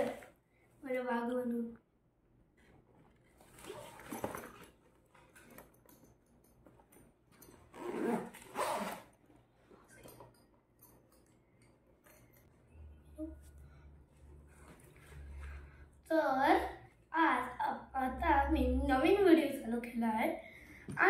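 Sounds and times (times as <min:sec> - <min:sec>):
backpack zipper pulled: 0:03.6 - 0:04.5, 0:07.7 - 0:09.2.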